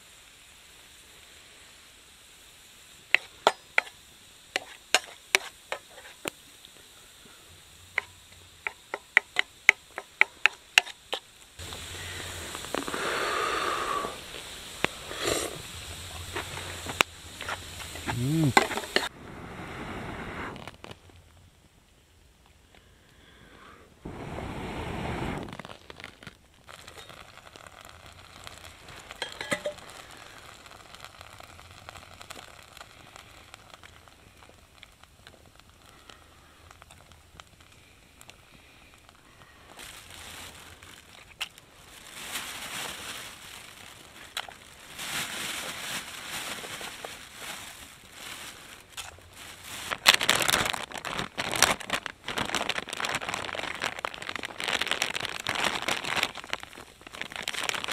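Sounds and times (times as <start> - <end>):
wood fire crackling: 0.0 - 57.9
rustling and clinking of food: 4.6 - 6.4, 15.2 - 19.1, 25.6 - 30.2, 39.4 - 57.9
plastic bag crinkling: 25.5 - 37.7, 39.0 - 57.9.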